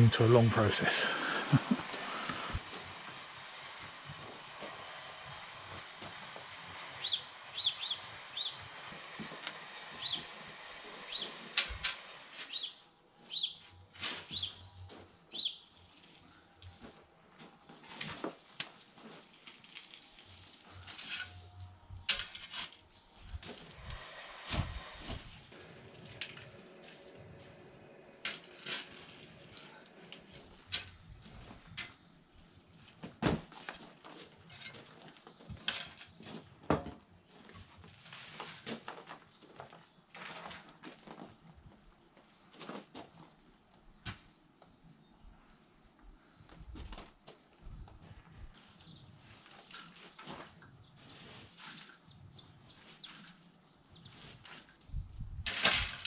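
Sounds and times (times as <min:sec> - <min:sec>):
spade in soil: 0:13.9 - 0:14.9, 0:17.8 - 0:32.0, 0:48.6 - 0:54.8, 0:55.4 - 0:56.0
spade digging into gravel: 0:19.2 - 0:22.8, 0:28.2 - 0:29.6, 0:55.4 - 0:56.0.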